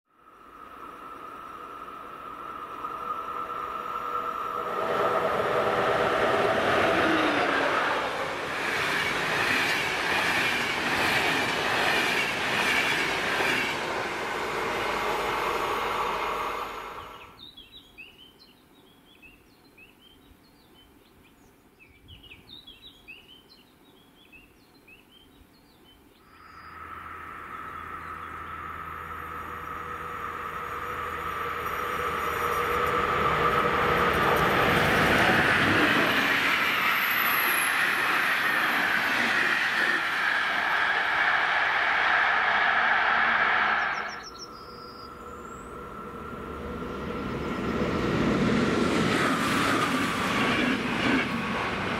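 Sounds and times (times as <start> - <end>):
electric train passing: 0.1 - 17.4, 26.3 - 51.9
birds chirping: 17.0 - 29.8, 43.8 - 46.1.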